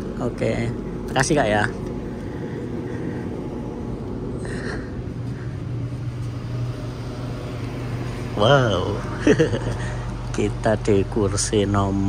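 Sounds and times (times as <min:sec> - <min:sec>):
train low mechanical hum: 0:00.0 - 0:12.0.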